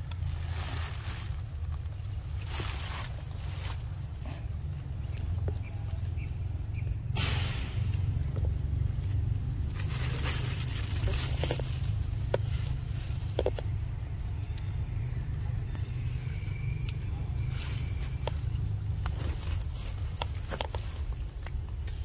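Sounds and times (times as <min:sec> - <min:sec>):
rustling: 0:00.0 - 0:04.2, 0:09.6 - 0:13.8, 0:17.4 - 0:21.5
insects droning: 0:00.0 - 0:22.0.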